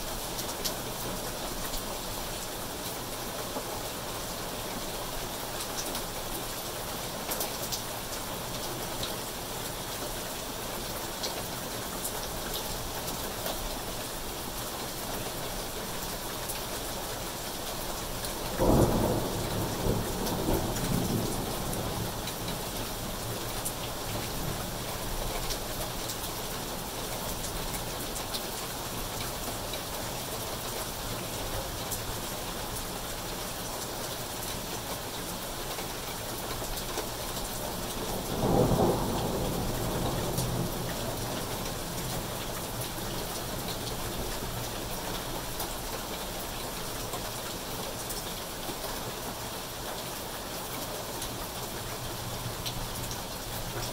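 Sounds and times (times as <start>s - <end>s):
rain on foliage and pavement: 0.0s - 53.9s
thunderclap rumbling: 18.6s - 22.1s.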